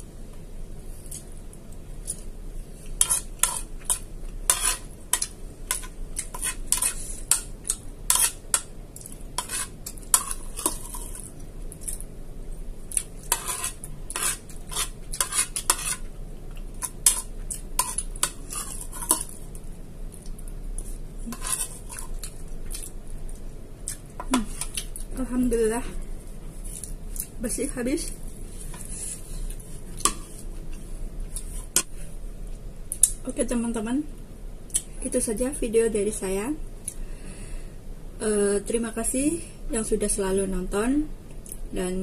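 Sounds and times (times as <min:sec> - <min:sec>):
metal spoon scraping ceramic plate: 0:03.0 - 0:04.9, 0:13.3 - 0:16.0, 0:21.3 - 0:22.0.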